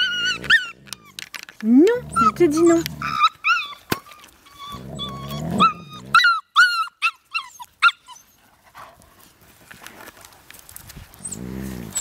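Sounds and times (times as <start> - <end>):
puppy squealing and yelping: 0.0 - 1.3, 2.1 - 8.4
dog growling: 0.0 - 3.4, 4.6 - 6.3, 11.2 - 12.0.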